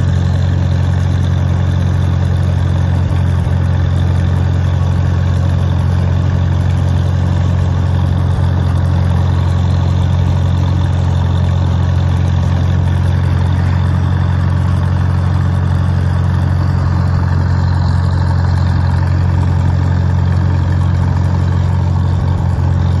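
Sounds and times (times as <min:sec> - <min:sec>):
tractor engine running: 0:00.0 - 0:23.0.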